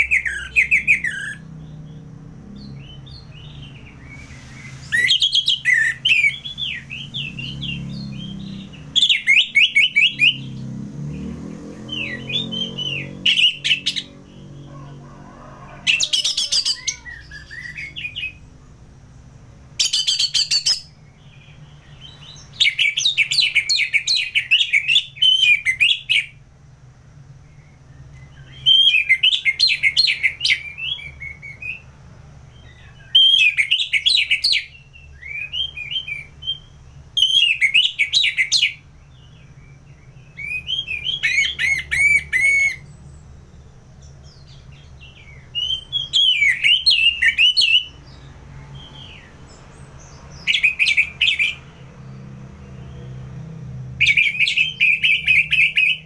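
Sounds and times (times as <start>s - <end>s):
thrush singing whistled notes: 0.0s - 18.6s, 19.8s - 26.4s, 27.2s - 56.0s.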